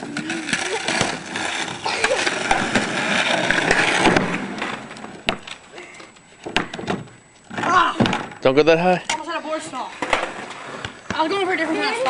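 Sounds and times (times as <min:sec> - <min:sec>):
skateboard clacks: 0:00.0 - 0:05.6
skateboard wheels rolling on asphalt: 0:00.0 - 0:05.7, 0:09.6 - 0:12.0.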